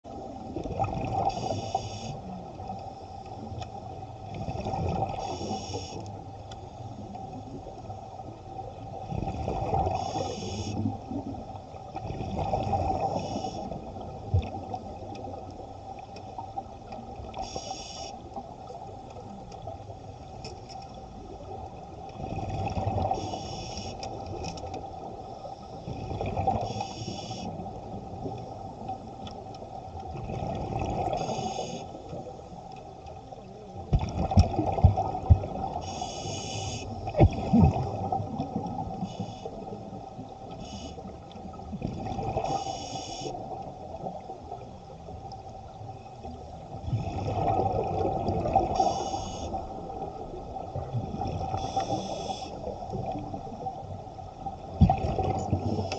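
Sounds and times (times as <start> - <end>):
exhale bubbling rumble: 0.1 - 1.6, 4.2 - 5.5, 7.2 - 15.5, 21.2 - 23.2, 33.8 - 36.0, 36.9 - 40.3, 41.5 - 42.6, 46.6 - 55.9
diver breathing through regulator: 1.3 - 2.2, 35.8 - 36.9, 51.5 - 52.7.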